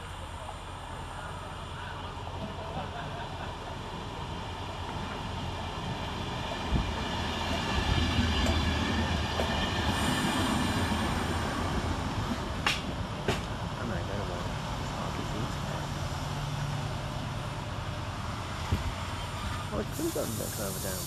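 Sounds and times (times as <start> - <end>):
train rumble: 0.0 - 21.0
train wheel knocks: 12.3 - 13.6.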